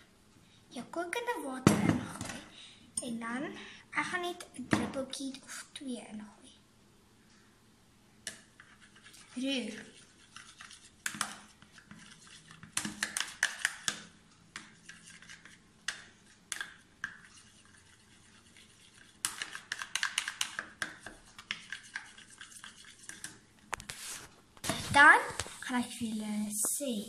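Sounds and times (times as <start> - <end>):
spoon scraping plastic tub: 8.3 - 25.8.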